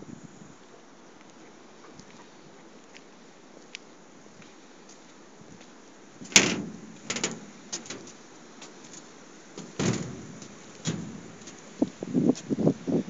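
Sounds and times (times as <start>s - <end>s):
thumps and knocks: 6.3s - 8.1s, 9.6s - 11.7s.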